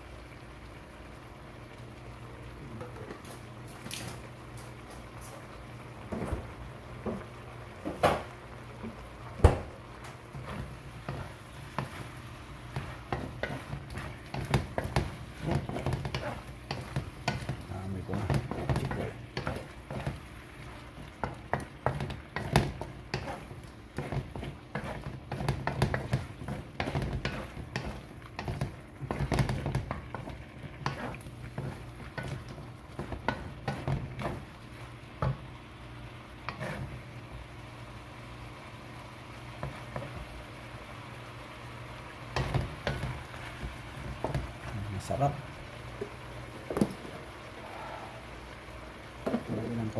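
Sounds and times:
shrimp sizzling in a wok: 0:00.0 - 0:49.9
wooden spatula scraping a wok: 0:10.0 - 0:38.0, 0:39.4 - 0:40.5, 0:42.3 - 0:45.4.

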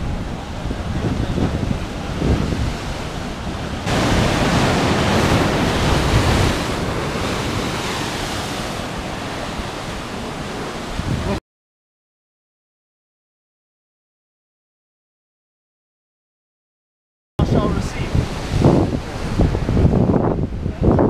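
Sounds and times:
surf breaking over rocks: 0:00.0 - 0:11.4
wind buffeting microphone: 0:00.0 - 0:11.4, 0:17.4 - 0:21.0.

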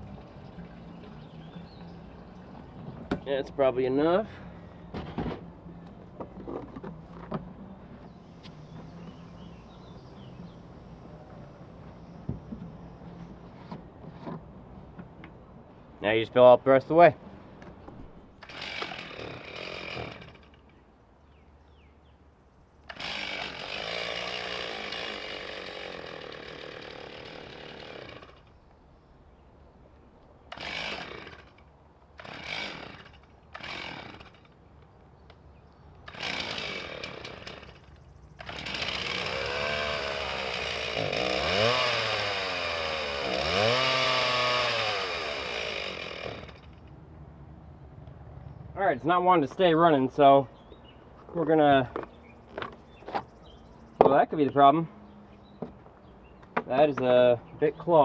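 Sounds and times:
chainsaw starting and stalling: 0:18.4 - 0:20.8, 0:22.9 - 0:28.5, 0:30.5 - 0:34.6, 0:36.0 - 0:46.9.

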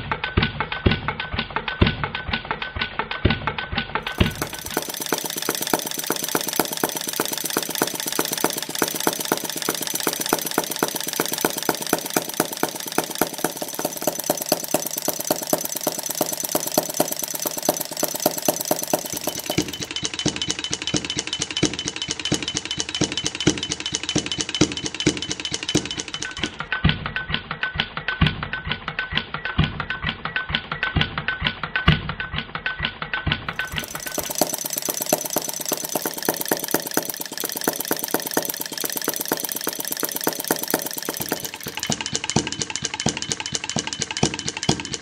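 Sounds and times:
model gas engine clattering: 0:04.0 - 0:26.7, 0:33.5 - 0:45.0.

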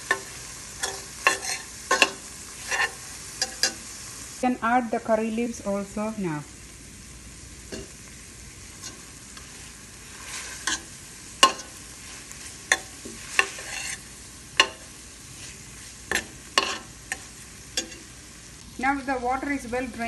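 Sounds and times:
frying sizzle: 0:00.0 - 0:20.0
metal spoon scraping pot: 0:00.8 - 0:03.8, 0:12.7 - 0:14.0, 0:16.1 - 0:17.2.

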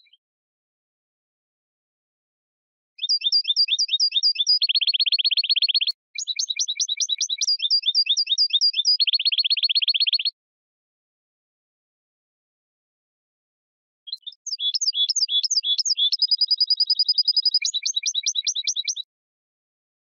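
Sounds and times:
bird chirping and trilling: 0:03.0 - 0:10.3, 0:14.1 - 0:19.1.

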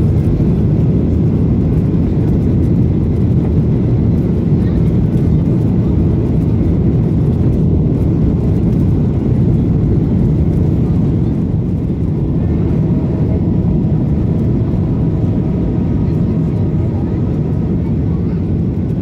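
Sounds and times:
faint steady engine tones: 0:00.0 - 0:19.0
jet engine rumble in cabin: 0:00.0 - 0:19.0.

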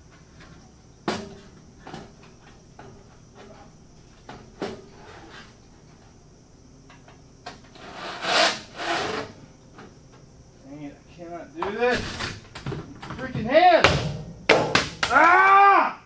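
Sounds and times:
metal duct rasping and sliding: 0:04.6 - 0:06.0, 0:07.6 - 0:09.4.

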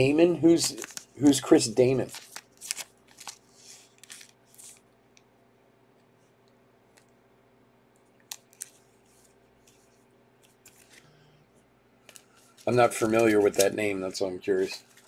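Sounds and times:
plastic sleeve crinkling: 0:00.0 - 0:04.9, 0:12.0 - 0:15.0.

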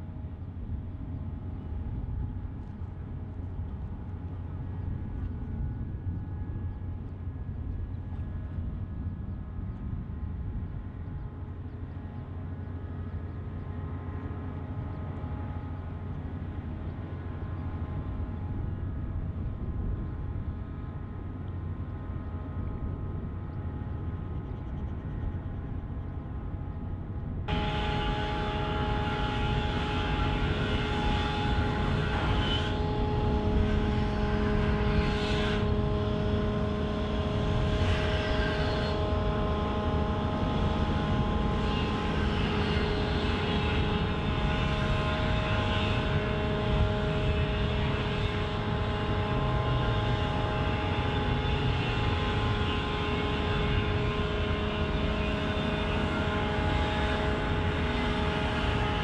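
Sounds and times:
ship diesel engines rumbling: 0:25.8 - 0:59.0
machinery humming tones: 0:27.5 - 0:59.0.

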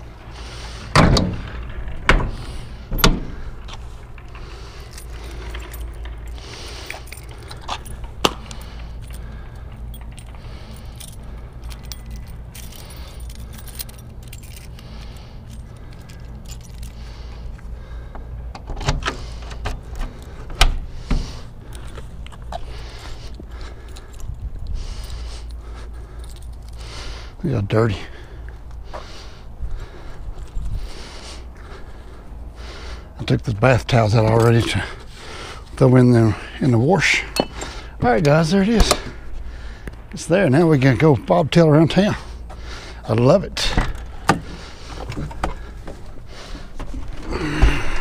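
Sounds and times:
latch clicks: 0:00.8 - 0:10.4, 0:18.5 - 0:21.2, 0:37.3 - 0:39.2.

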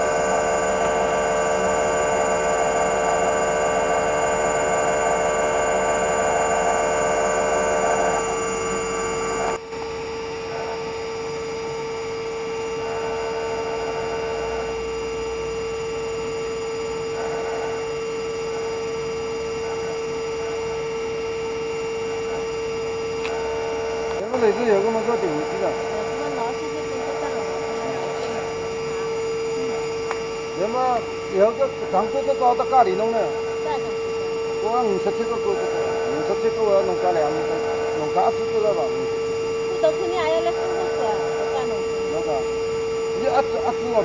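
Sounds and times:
constant whining tone: 0:00.0 - 0:44.0
machinery hum: 0:00.0 - 0:44.0.

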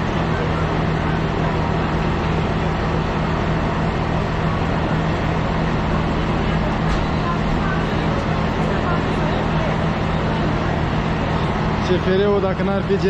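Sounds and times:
electric locomotive humming: 0:00.0 - 0:13.0.

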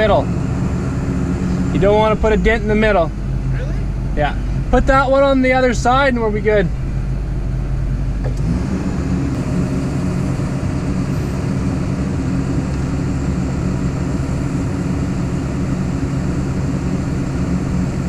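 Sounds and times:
excavator diesel engine running: 0:00.0 - 0:18.0.

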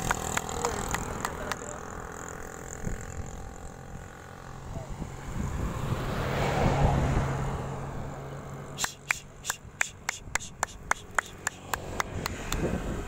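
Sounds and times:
pigeon wings clapping: 0:00.0 - 0:01.7, 0:08.8 - 0:12.4.

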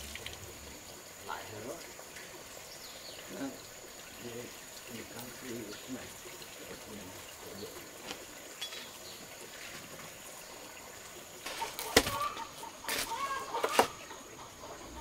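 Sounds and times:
chickens clucking: 0:11.4 - 0:15.0.

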